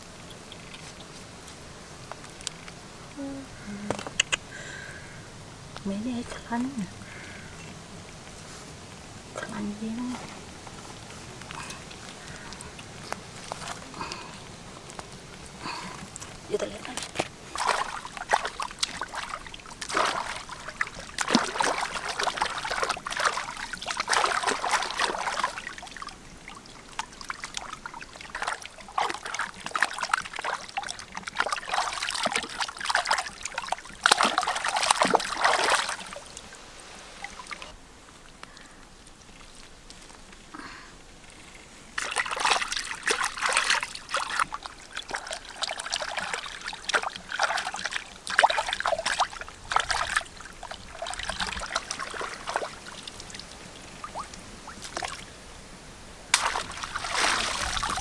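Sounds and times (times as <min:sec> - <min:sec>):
hands splashing in water: 0:16.8 - 0:26.1, 0:26.9 - 0:36.4, 0:42.0 - 0:53.2, 0:56.3 - 0:58.0.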